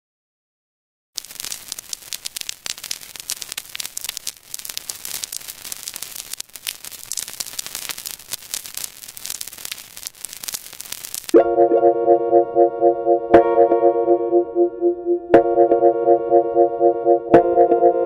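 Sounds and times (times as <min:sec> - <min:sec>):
crackling static: 0:01.2 - 0:11.4.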